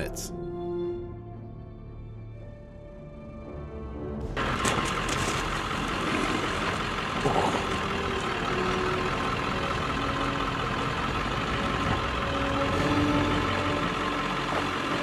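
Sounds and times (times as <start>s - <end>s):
truck engine idling: 4.3s - 15.0s.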